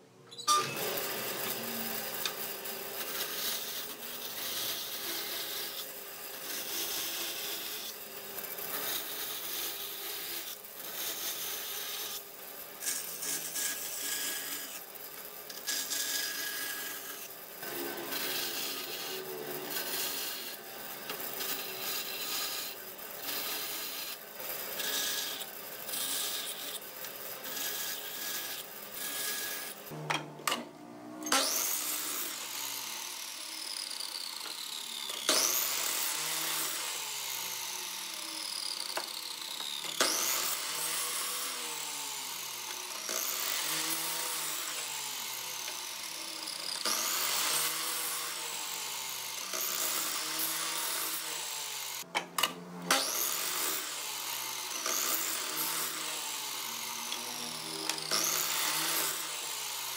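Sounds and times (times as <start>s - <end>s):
band saw cutting wood: 0.3s - 59.9s
miter saw cutting wood: 0.5s - 59.9s
saw blade whine coasting down: 27.9s - 49.4s.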